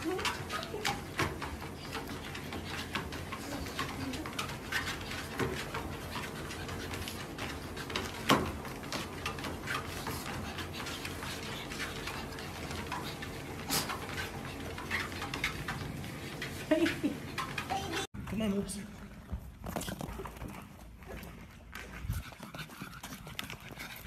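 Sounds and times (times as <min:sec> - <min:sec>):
steps knocking on treadmill belt: 0:00.0 - 0:18.1
treadmill motor hum: 0:00.0 - 0:18.1.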